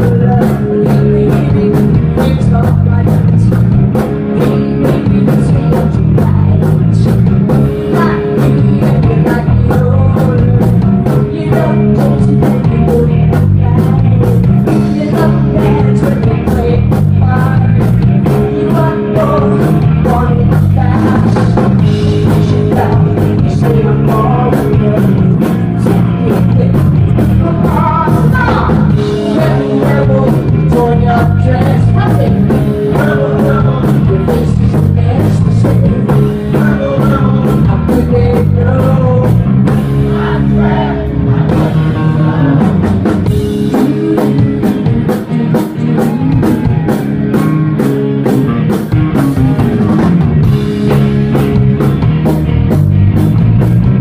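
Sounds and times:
woman singing: 0.0s - 3.7s, 4.3s - 39.3s
live rock band playing: 0.0s - 54.0s.

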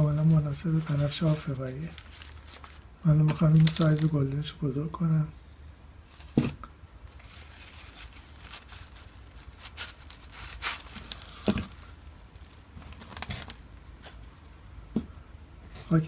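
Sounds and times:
plastic plant pot crinkling: 0.0s - 4.5s, 7.1s - 14.4s
soil rustling: 0.0s - 4.5s, 7.1s - 14.8s.

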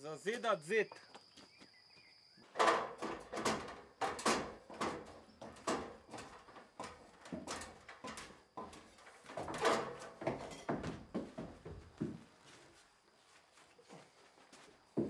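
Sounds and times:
boots stepping on metal ladder rungs: 2.5s - 12.8s.

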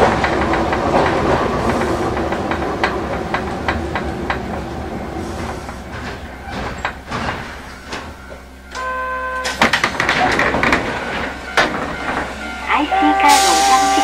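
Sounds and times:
tram doors opening: 0.0s - 14.0s
tram running noise: 0.0s - 14.0s
clattering clicks: 5.4s - 12.4s.

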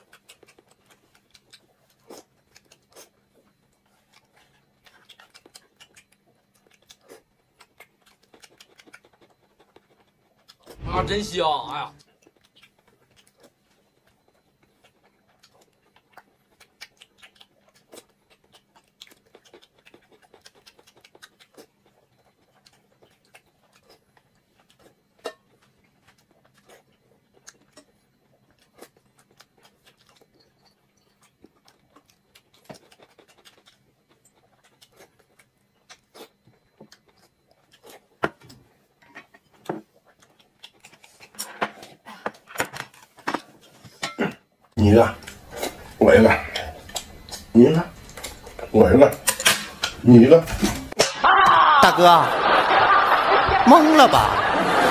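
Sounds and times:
faint low hum: 0.0s - 54.9s
clatter of dishes: 41.3s - 41.9s, 42.5s - 44.4s, 49.2s - 51.2s.

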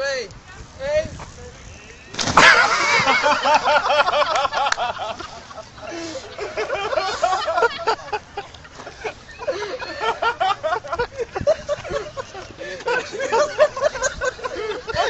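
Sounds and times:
person laughing: 2.4s - 15.0s.

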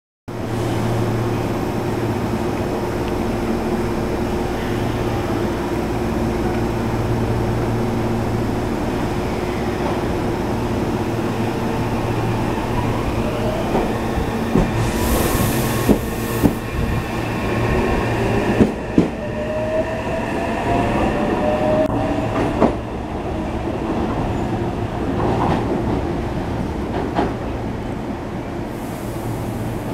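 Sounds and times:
standing train hum: 0.3s - 29.9s
train air hiss: 13.7s - 18.5s, 28.6s - 29.9s.

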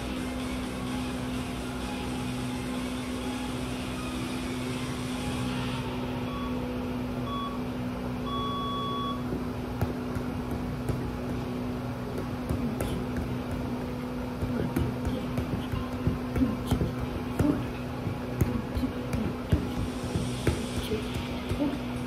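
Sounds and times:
electrical hum: 0.0s - 22.0s
electronic timer beeps: 6.2s - 6.6s, 7.2s - 9.3s
foot tapping soccer ball: 8.6s - 22.0s.

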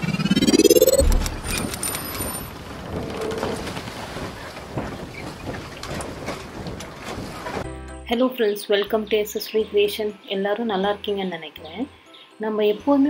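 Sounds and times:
rising swoosh: 0.0s - 2.0s
deep boom: 0.8s - 1.7s.

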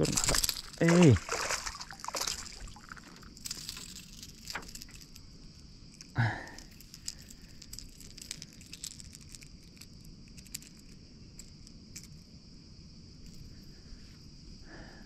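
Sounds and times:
fishing lure clicking and rattling: 6.0s - 12.2s.

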